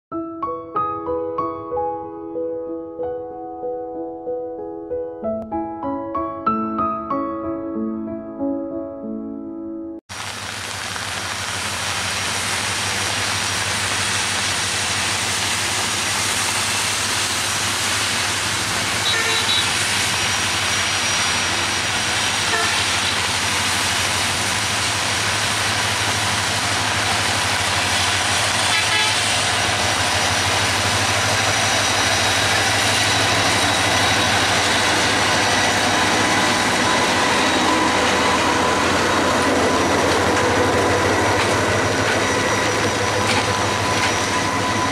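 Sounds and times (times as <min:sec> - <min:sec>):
train wheels rumbling on rails: 0:10.1 - 0:44.9
locomotive engine drone: 0:10.2 - 0:44.9.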